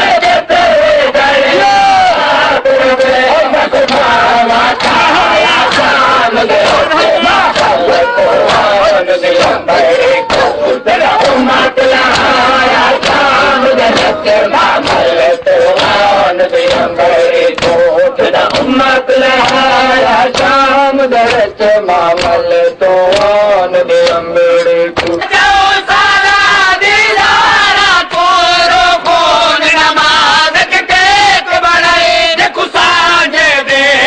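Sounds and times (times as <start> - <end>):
men chanting into a microphone: 0.0 - 34.0
hand slaps on chests: 3.8 - 17.8, 18.4 - 20.6, 21.2 - 21.5, 22.1 - 22.4, 23.1 - 23.4, 24.0 - 24.2, 25.0 - 25.3.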